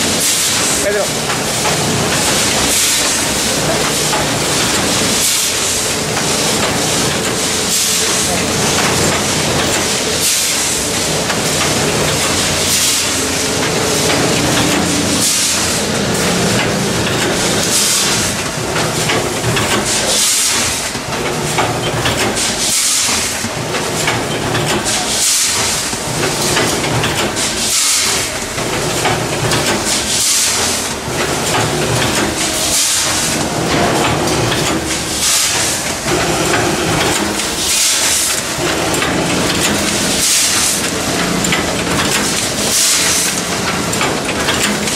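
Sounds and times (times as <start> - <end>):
machine noise: 0.0 - 44.9
pneumatic air hiss: 24.9 - 25.8, 27.4 - 28.3.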